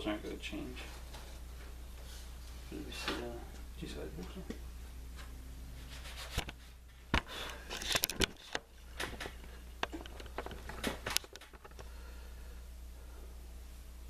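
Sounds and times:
steady low hum: 0.0s - 14.0s
wooden clicks and knocks: 7.9s - 11.9s.

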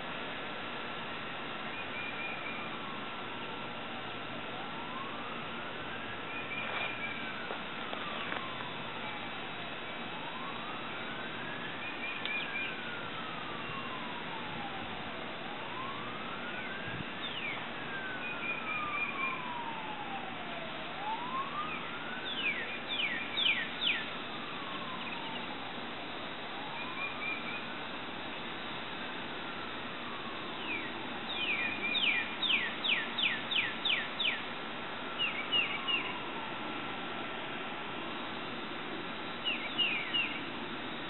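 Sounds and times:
siren wailing: 4.2s - 28.0s, 30.1s - 34.4s, 35.1s - 36.8s, 39.4s - 40.6s
birds chirping: 22.3s - 24.1s, 30.5s - 34.4s, 35.2s - 36.2s, 39.4s - 40.5s.

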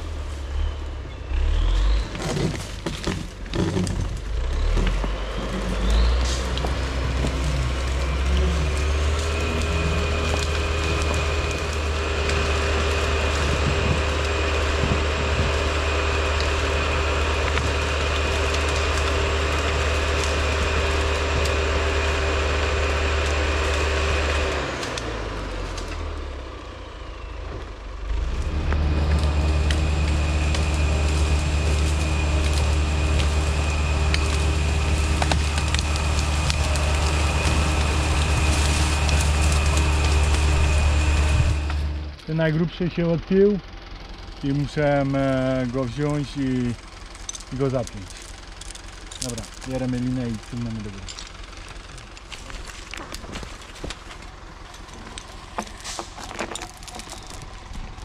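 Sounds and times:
diesel engine running under load: 0.0s - 58.0s
steady whine: 4.0s - 58.0s
knocks and cracks: 29.2s - 40.6s, 50.8s - 58.0s.

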